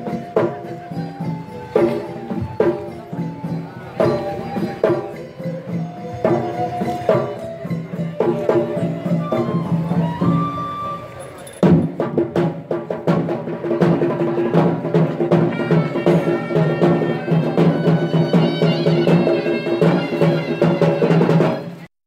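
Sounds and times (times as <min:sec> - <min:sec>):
drumbeats: 0:00.0 - 0:21.9.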